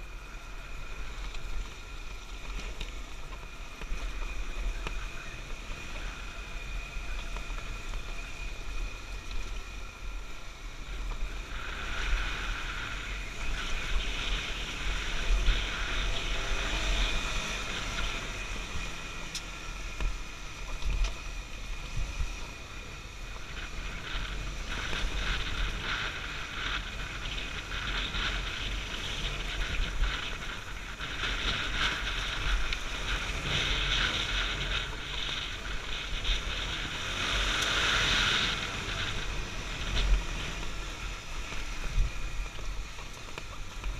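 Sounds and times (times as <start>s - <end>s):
dirt bike engine: 0.0s - 43.9s
wind buffeting microphone: 19.8s - 43.9s.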